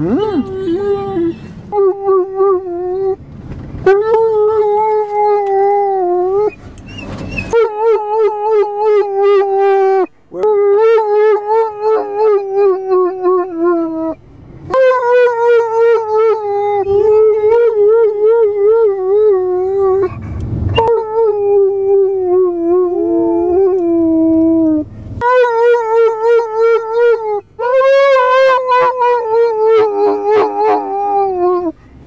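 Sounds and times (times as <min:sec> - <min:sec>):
dog howling: 0:07.5 - 0:20.1, 0:20.8 - 0:31.7.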